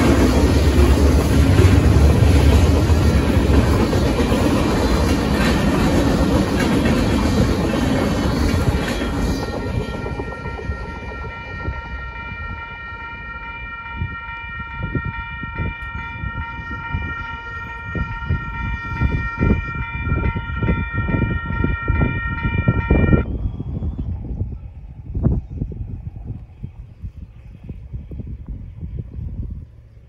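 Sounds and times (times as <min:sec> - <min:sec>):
railroad crossing bell ringing: 0:00.0 - 0:23.3
wind buffeting microphone: 0:00.0 - 0:30.0.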